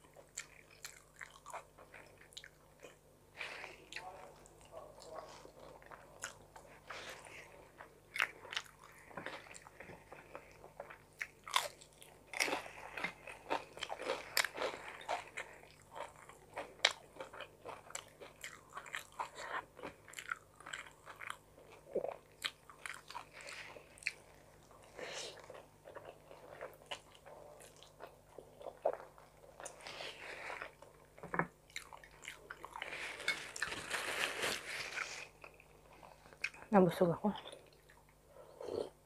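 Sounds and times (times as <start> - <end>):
person chewing pasta: 0.0 - 36.7, 37.4 - 39.0.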